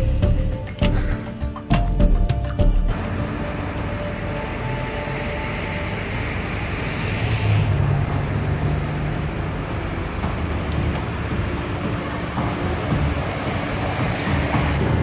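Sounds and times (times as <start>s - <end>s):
street traffic rumble: 0.0s - 15.0s
vehicle engine hum: 0.0s - 15.0s.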